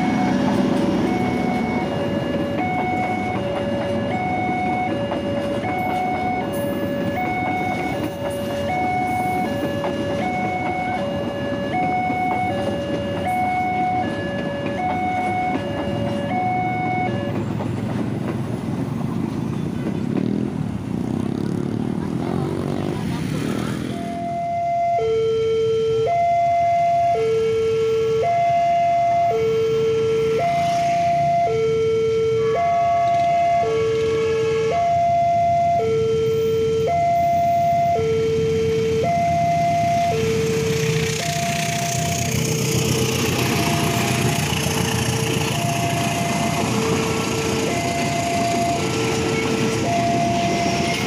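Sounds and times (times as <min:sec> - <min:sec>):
level crossing alarm: 0:00.0 - 0:17.6, 0:23.9 - 0:51.0
train passing over rails: 0:00.0 - 0:24.4, 0:29.1 - 0:31.6, 0:32.4 - 0:51.0
motorbike engines revving: 0:00.0 - 0:24.9, 0:37.0 - 0:51.0
road traffic rumble: 0:00.0 - 0:51.0.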